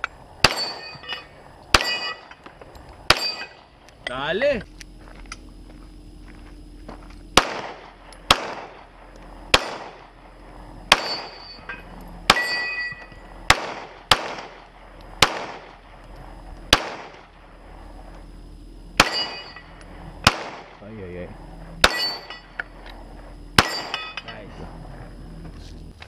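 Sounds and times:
steel target ringing: 0.4 - 2.4, 3.1 - 4.3, 10.9 - 13.2, 19.0 - 19.8, 21.8 - 22.7, 23.6 - 24.4
pistol shots with echo: 1.7 - 2.2, 3.1 - 3.6, 7.4 - 10.3, 10.9 - 11.4, 12.3 - 12.8, 13.5 - 15.9, 16.7 - 17.3, 19.0 - 19.6, 20.2 - 20.8, 21.8 - 22.4, 23.6 - 24.1.

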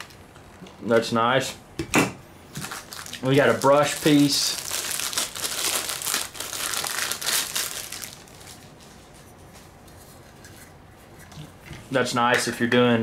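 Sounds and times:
plastic packaging crinkling: 0.0 - 0.2, 2.5 - 9.8.

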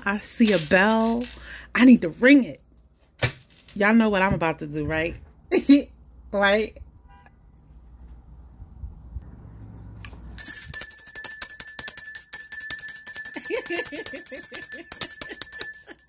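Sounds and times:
handbell ringing rapidly: 10.2 - 16.0.

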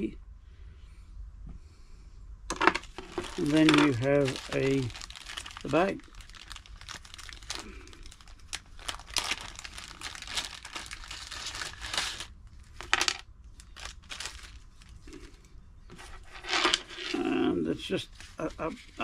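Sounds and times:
plastic bag crinkling: 2.6 - 15.3, 16.2 - 17.2.

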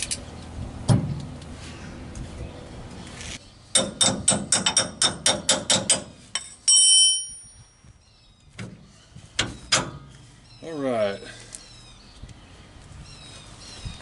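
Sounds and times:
bright metallic clink: 6.4 - 7.8.

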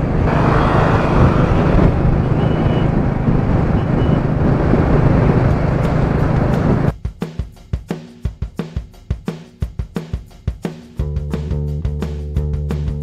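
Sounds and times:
motorcycle engine hum: 0.0 - 6.9
wind and road noise: 0.0 - 6.9.

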